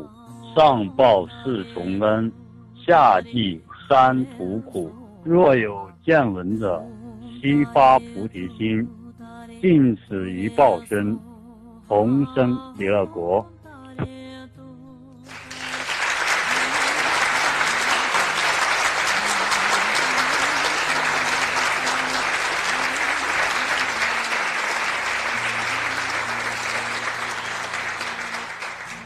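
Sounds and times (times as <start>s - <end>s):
crowd applauding: 15.3s - 29.0s.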